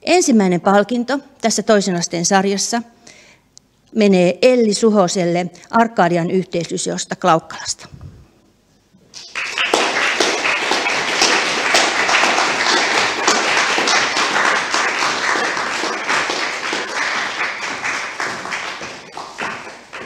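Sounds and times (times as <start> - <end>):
audience applauding: 9.2 - 20.0.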